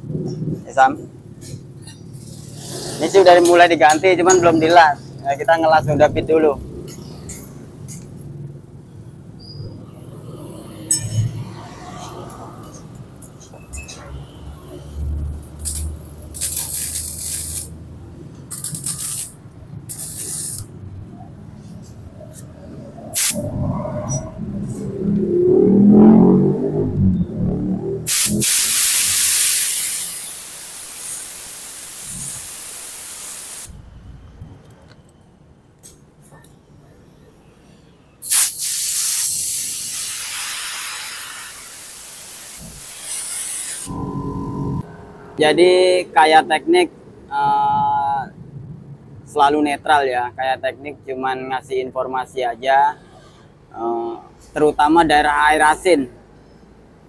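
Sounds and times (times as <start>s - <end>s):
arc welding hissing: 15.6s - 17.8s, 18.5s - 20.7s, 23.2s - 23.4s, 28.1s - 33.8s, 38.2s - 43.9s.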